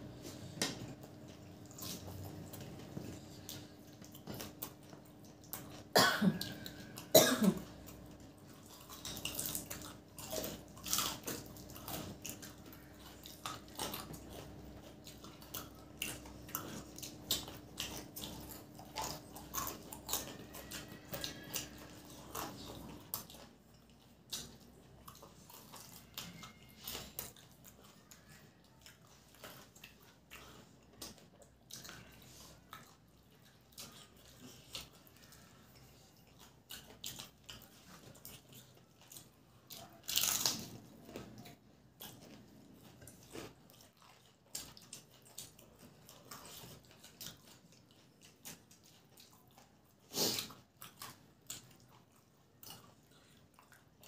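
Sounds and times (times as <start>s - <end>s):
crunching and chewing: 0.0s - 54.0s
person coughing: 5.9s - 7.7s.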